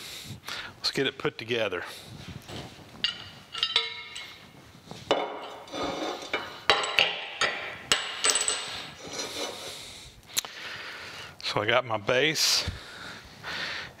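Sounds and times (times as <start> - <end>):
metal-on-metal clanks: 3.0 - 4.4, 5.1 - 9.4.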